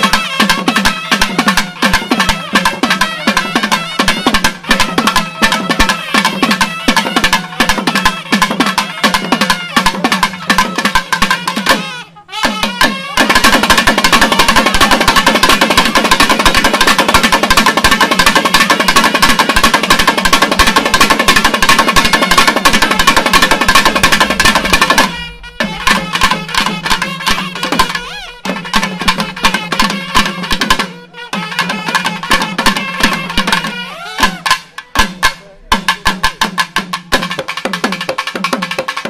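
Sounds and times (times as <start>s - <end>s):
thavil drumming: 0.0s - 39.0s.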